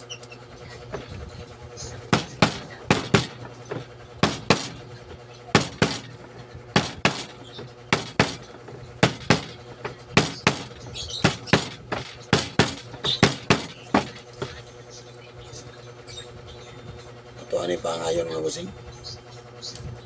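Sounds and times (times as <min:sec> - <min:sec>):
tool tapping copper windings: 0:02.1 - 0:04.8, 0:05.6 - 0:15.8.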